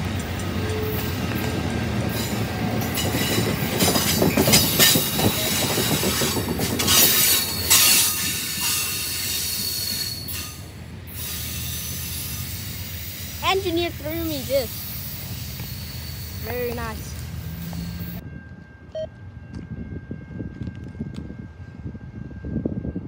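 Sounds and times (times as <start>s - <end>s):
train wheels rumbling on rails: 0.0s - 23.0s
train wheels squealing: 2.1s - 19.1s.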